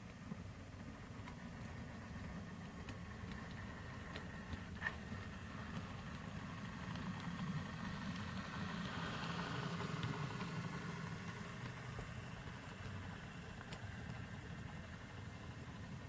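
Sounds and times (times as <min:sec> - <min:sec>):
model locomotive engine drone: 0:00.0 - 0:16.0.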